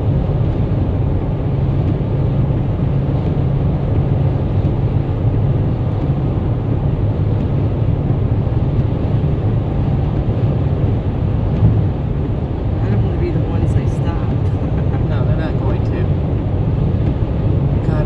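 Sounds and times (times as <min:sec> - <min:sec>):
car road and engine rumble: 0:00.0 - 0:18.0.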